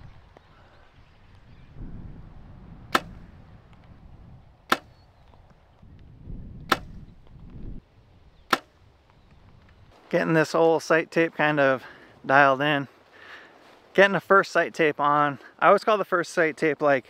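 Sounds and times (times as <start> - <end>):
compound bow shots: 2.8 - 3.9, 4.6 - 5.1, 6.6 - 7.3, 8.4 - 8.9.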